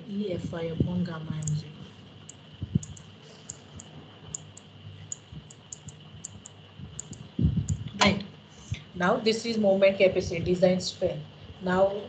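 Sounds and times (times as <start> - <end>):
high-pitched electronic hum: 0.0 - 12.0
faint sharp clicking: 2.3 - 7.9.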